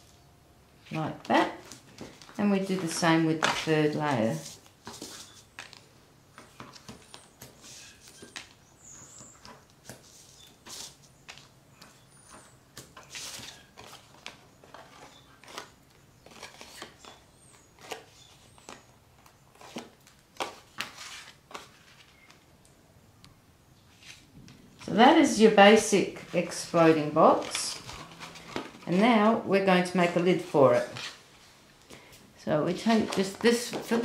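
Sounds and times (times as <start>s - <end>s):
cardstock rustling and tapping: 32.8s - 34.0s.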